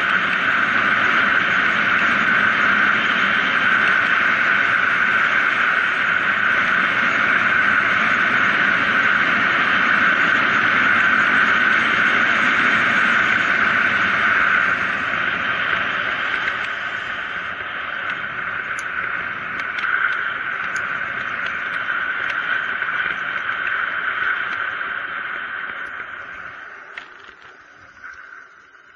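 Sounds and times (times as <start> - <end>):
bike tyre hum on asphalt: 0.0 - 28.9
wind over camera: 0.0 - 28.9
faint ticks: 16.2 - 16.8, 18.0 - 28.9.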